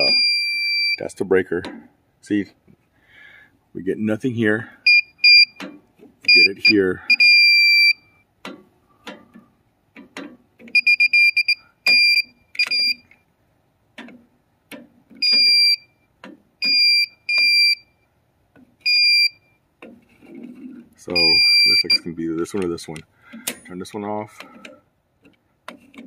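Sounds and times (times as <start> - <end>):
high-pitched receiver beeps: 0.0 - 1.2, 4.9 - 5.6, 6.3 - 8.2, 10.8 - 13.1, 15.2 - 15.9, 21.1 - 22.1
light clicks and knocks: 13.9 - 15.2.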